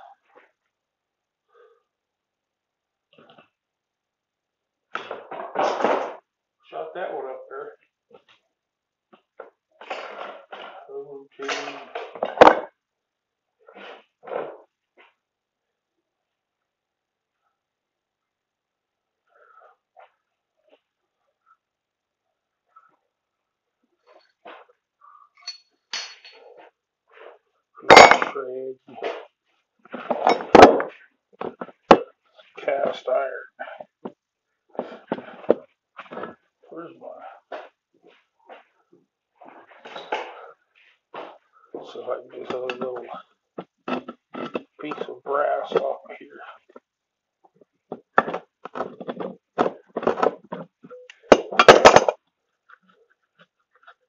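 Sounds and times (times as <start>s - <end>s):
clattering metal knocks: 51.3s - 52.2s.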